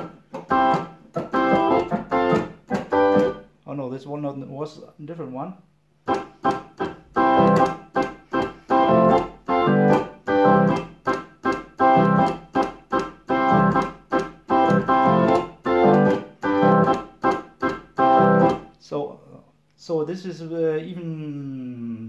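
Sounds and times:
electric organ ska rhythm: 0.0 - 3.5, 6.0 - 18.7.

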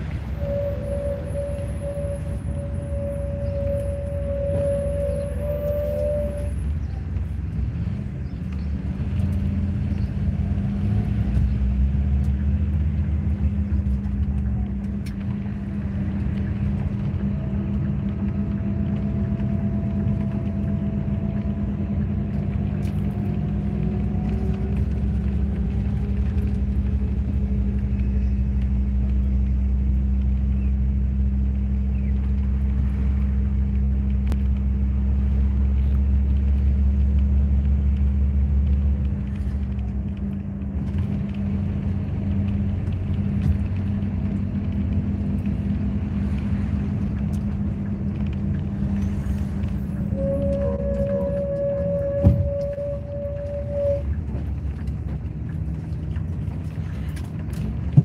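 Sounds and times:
vehicle engine and road noise: 0.0 - 58.0.

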